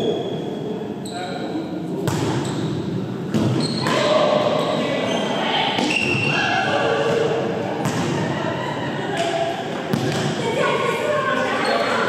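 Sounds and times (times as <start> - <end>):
volleyball being hit: 2.0 - 2.4, 7.8 - 8.2, 9.9 - 10.4.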